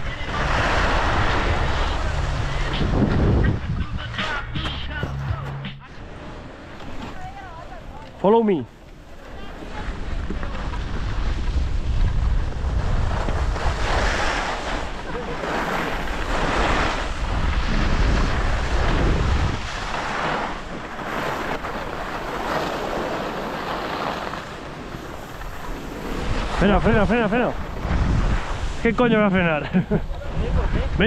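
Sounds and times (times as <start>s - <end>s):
wind buffeting microphone: 0.0s - 4.2s, 9.8s - 23.4s, 24.7s - 31.0s
skis hissing on snow: 0.1s - 3.0s, 10.5s - 29.8s.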